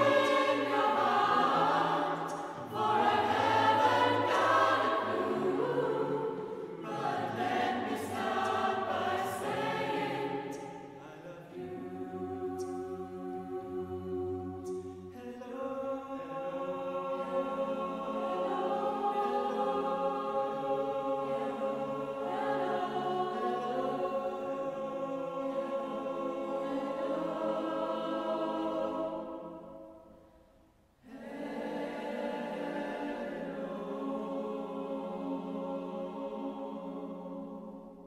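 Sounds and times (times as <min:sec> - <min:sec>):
choir singing sustained chords: 0:00.0 - 0:38.0.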